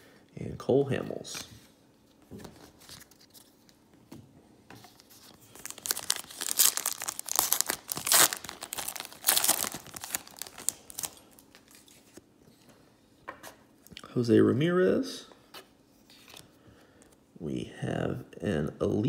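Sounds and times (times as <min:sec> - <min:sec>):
foil wrapper tearing and crinkling: 0:05.4 - 0:11.6.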